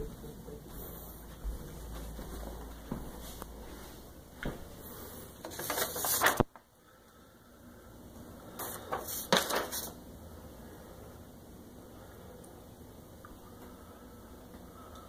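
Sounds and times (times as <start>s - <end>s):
low hum: 0.0s - 5.4s.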